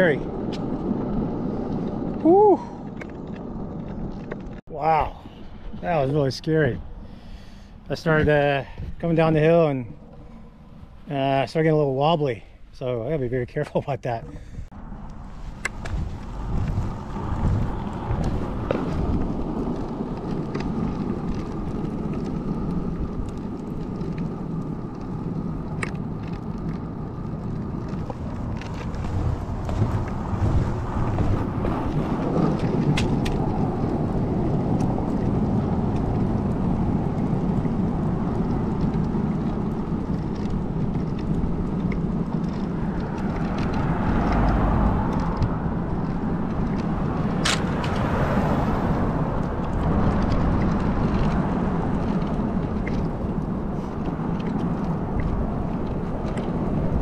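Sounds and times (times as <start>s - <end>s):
wheels clicking on bumps: 0.0s - 11.8s, 13.5s - 57.0s
skateboard wheels rolling on asphalt: 0.0s - 57.0s
wind buffeting microphone: 0.0s - 57.0s.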